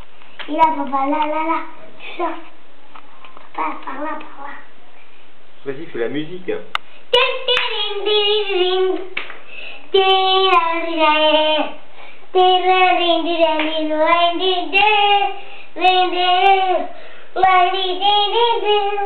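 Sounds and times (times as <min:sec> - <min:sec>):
child singing: 0:00.5 - 0:02.5, 0:03.5 - 0:04.7, 0:07.1 - 0:09.2, 0:09.9 - 0:19.0.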